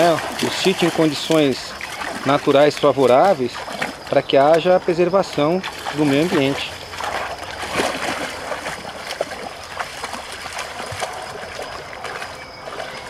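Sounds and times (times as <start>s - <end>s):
dogs splashing through water: 0.0s - 13.0s
running water hiss: 0.0s - 13.0s.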